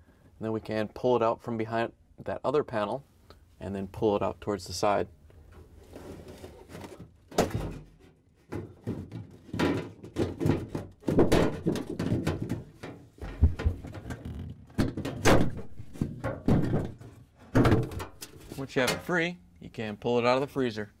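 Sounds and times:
knocks and thunks on plastic panel: 8.5 - 18.1.

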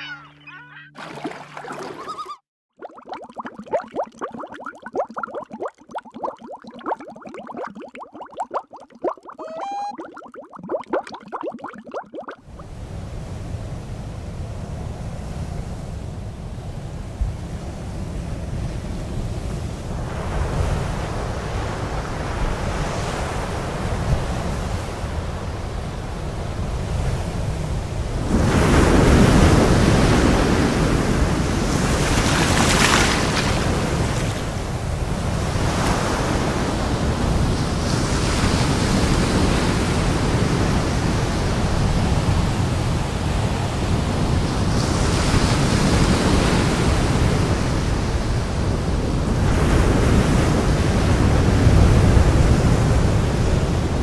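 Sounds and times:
sea waves breaking on shore: 27.2 - 41.9.

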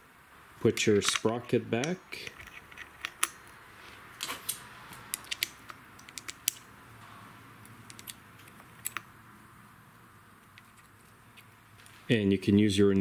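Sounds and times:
metallic clicks of chainsaw parts: 4.2 - 6.7.

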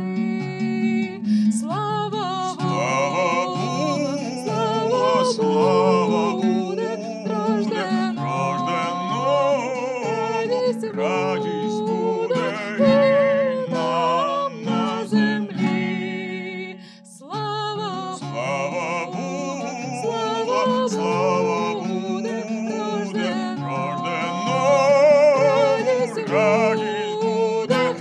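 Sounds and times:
plucked lute: 0.0 - 28.0
woman singing folk melody: 0.0 - 28.0.

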